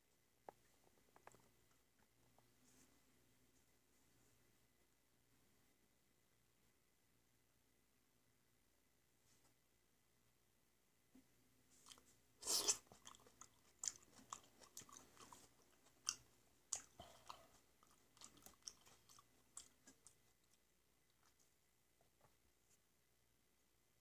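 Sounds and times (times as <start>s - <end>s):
person chewing: 11.8s - 21.4s
wet mouth noise: 11.9s - 20.2s.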